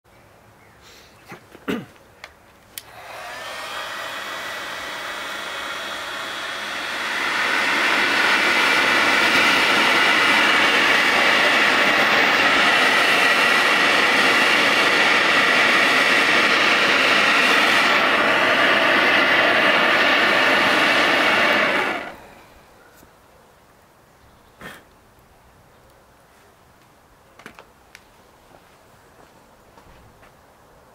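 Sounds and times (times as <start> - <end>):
hot-air blower rushing: 2.8 - 22.8.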